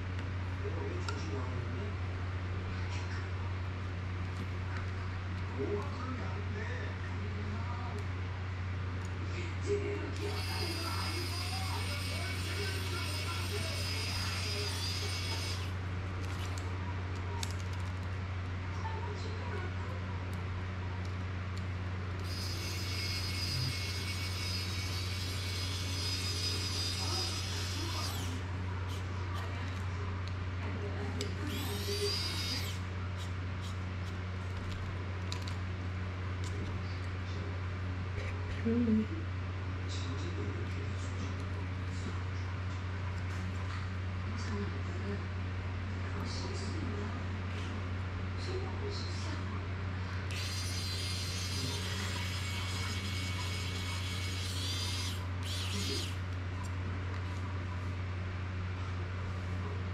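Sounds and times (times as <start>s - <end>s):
electric screwdriver running: 10.2s - 16.6s, 22.2s - 28.4s, 31.5s - 32.8s, 50.3s - 56.2s.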